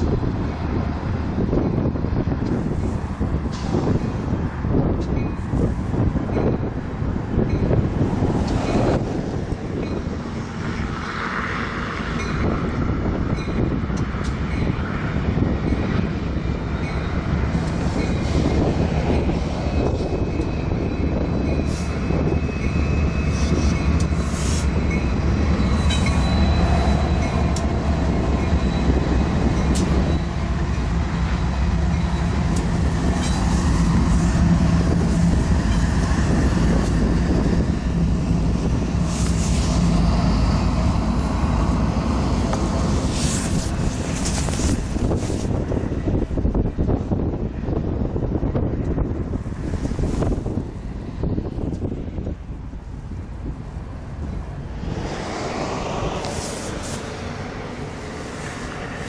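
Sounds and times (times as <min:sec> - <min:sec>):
locomotive engine drone: 0:00.0 - 0:59.0
wheel and rail noise: 0:00.0 - 0:59.0
high wheel squeal: 0:19.6 - 0:30.8, 0:31.8 - 0:44.4.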